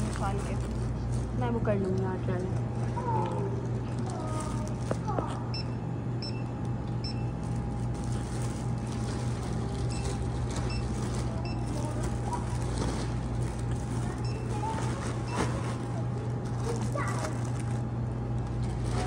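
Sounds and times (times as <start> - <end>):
steady low hum: 0.0 - 19.0
barcode scanner beeps: 5.5 - 7.4, 9.9 - 11.8, 14.2 - 14.6.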